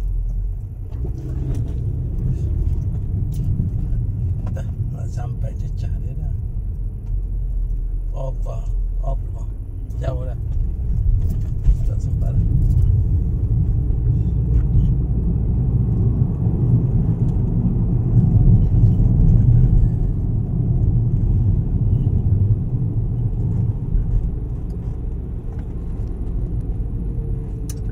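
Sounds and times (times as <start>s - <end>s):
low engine rumble: 0.0s - 27.9s
road noise: 0.0s - 27.9s.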